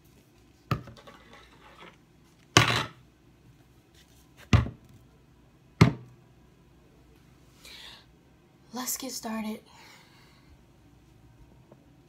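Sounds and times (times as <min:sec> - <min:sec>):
items knocking on wooden desk: 0:04.5 - 0:04.8, 0:05.8 - 0:06.1.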